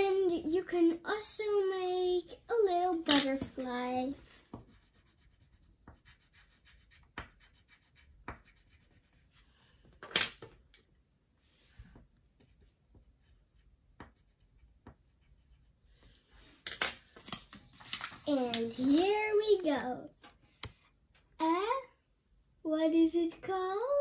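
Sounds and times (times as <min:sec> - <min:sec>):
markers scratching on paper: 0:04.2 - 0:09.5, 0:12.4 - 0:15.8.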